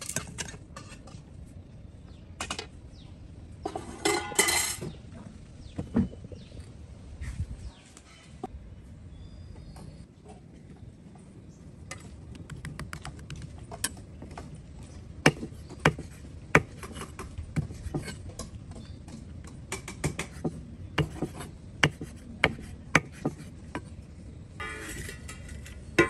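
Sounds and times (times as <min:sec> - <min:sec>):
knife chopping on wooden block: 0:21.0 - 0:23.5.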